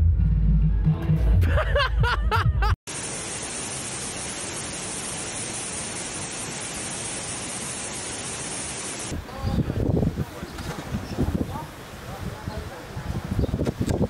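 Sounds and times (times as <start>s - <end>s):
floodwater rushing: 2.9s - 9.1s.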